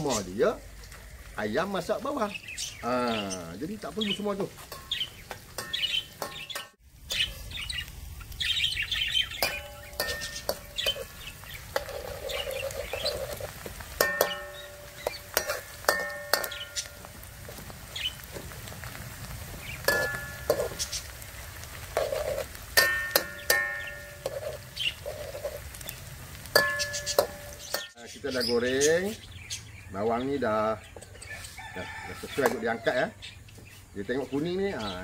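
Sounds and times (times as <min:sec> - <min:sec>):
birds chirping: 0:00.0 - 0:35.0
shallots frying in a wok: 0:00.0 - 0:35.0
ladle clinking against a wok: 0:04.6 - 0:07.5, 0:09.3 - 0:17.1, 0:19.8 - 0:20.9, 0:22.0 - 0:25.6, 0:26.5 - 0:28.0.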